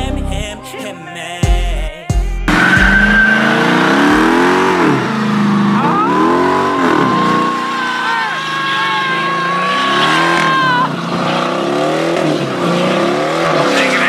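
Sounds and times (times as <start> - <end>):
heavy bass music: 0.0 - 0.6, 1.4 - 7.5
car engine revving: 2.5 - 14.0
tyres squealing: 2.5 - 14.0.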